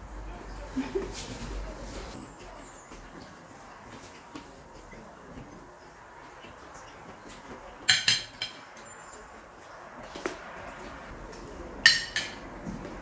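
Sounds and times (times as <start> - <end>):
cutlery clinking against plates: 6.8 - 9.2, 11.3 - 12.8.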